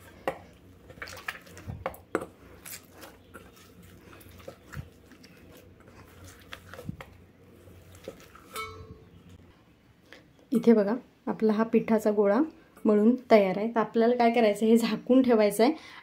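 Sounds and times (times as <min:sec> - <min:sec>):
dough squelching and slapping: 0:00.0 - 0:08.8.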